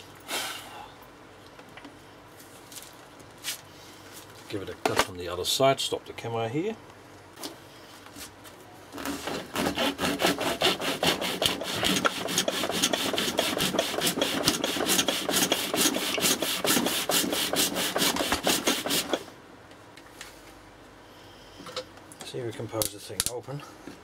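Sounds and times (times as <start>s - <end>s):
hacksaw cutting rubbery plastic: 9.0s - 19.2s.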